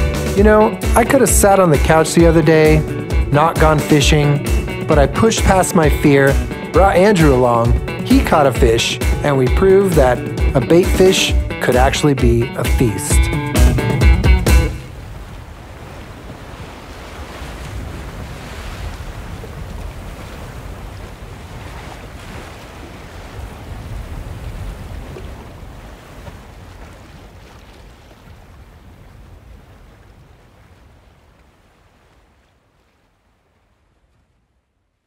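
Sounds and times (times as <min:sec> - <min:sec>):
ocean surf breaking: 0:00.0 - 0:32.9
wind: 0:14.7 - 0:35.0.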